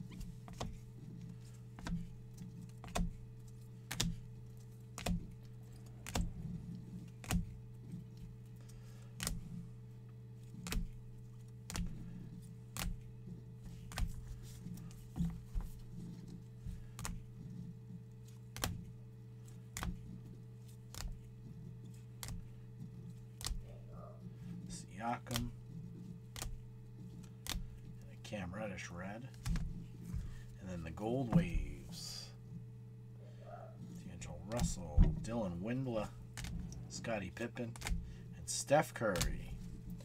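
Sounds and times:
steady low hum: 0.0s - 40.0s
plastic card holders clicking: 37.7s - 37.9s, 39.1s - 39.6s.

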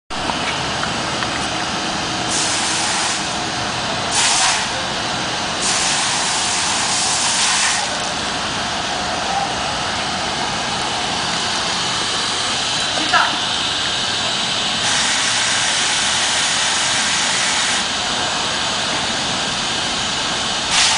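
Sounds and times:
car wash equipment hissing: 0.2s - 20.9s
nozzle spray bursts: 4.1s - 4.7s, 5.6s - 7.9s, 14.8s - 17.9s, 20.7s - 20.9s.

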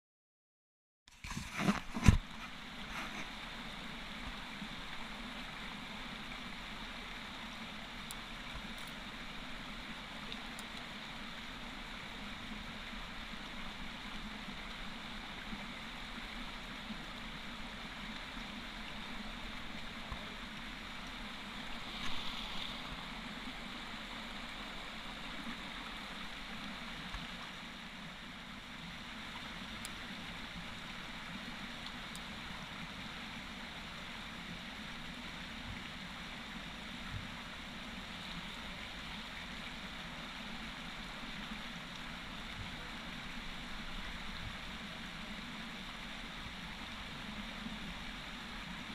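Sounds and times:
creek water running over stones: 1.1s - 48.9s.

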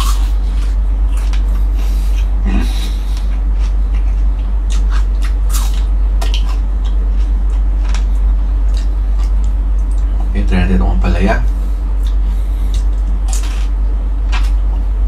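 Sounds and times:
steady low hum: 0.0s - 15.0s
wet chewing and lip smacks: 2.1s - 10.3s, 12.0s - 13.7s.

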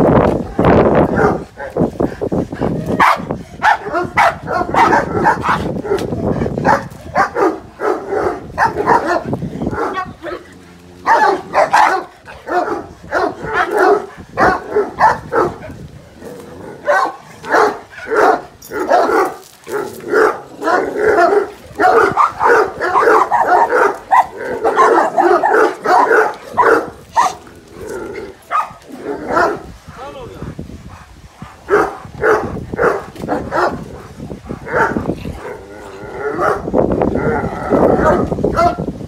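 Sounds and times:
dog barking: 1.1s - 1.8s, 3.0s - 6.0s, 6.6s - 10.4s, 11.0s - 15.7s, 16.8s - 27.4s, 28.5s - 29.7s, 31.6s - 33.8s, 34.6s - 35.1s, 36.4s - 36.7s, 38.0s - 38.8s.

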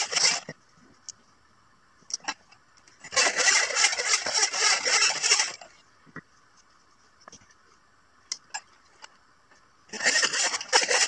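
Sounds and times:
hand saw cutting wood: 0.0s - 0.5s, 3.1s - 5.7s, 9.9s - 11.0s.

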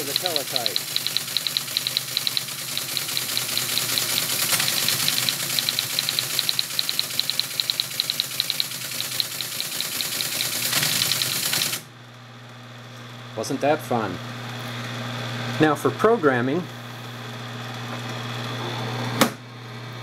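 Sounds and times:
teletype typing clatter: 0.0s - 11.8s
motor hum: 0.0s - 12.6s.

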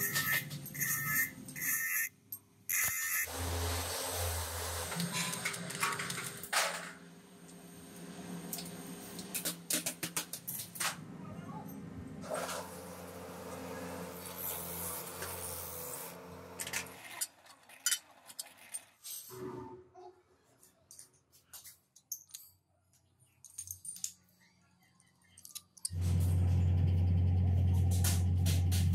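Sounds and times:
steady machine hum: 11.8s - 16.8s.

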